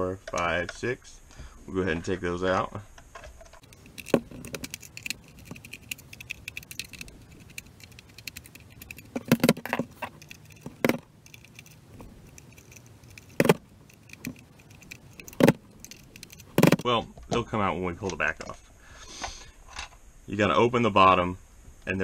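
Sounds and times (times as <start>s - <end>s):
screwdriver ticking and scraping screws: 3.6s - 16.8s
tool clacks on plastic: 3.6s - 16.8s.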